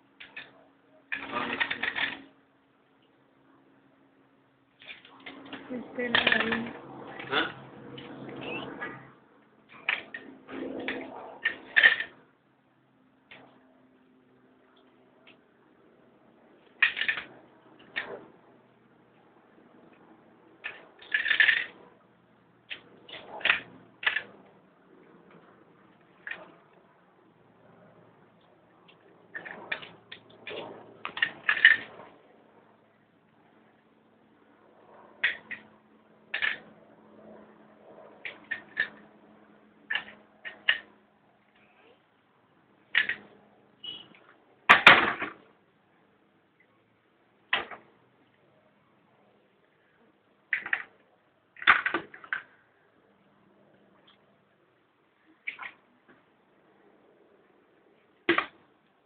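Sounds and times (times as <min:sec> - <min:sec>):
plastic toys clattering: 0:00.2 - 0:02.3, 0:04.8 - 0:07.4, 0:09.7 - 0:12.2, 0:16.8 - 0:18.2, 0:20.6 - 0:21.8, 0:22.7 - 0:24.4, 0:26.0 - 0:26.6, 0:28.9 - 0:32.1, 0:36.3 - 0:36.7, 0:38.2 - 0:39.0, 0:39.9 - 0:40.9, 0:42.9 - 0:43.3, 0:43.9 - 0:45.5, 0:50.5 - 0:51.0, 0:51.6 - 0:52.6, 0:58.3 - 0:58.6
toys dropping into plastic bucket: 0:44.7 - 0:45.4.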